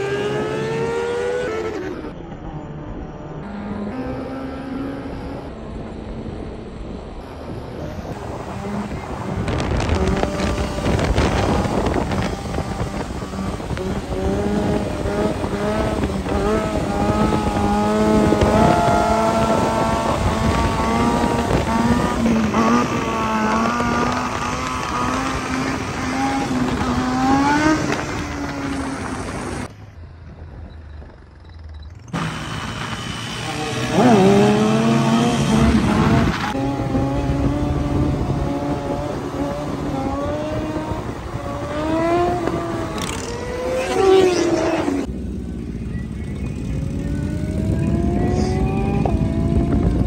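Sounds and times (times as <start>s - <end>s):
wind on microphone: 5.4s - 31.3s, 32.2s - 45.1s, 46.4s - 50.0s
motorcycle engine running: 45.0s - 50.0s.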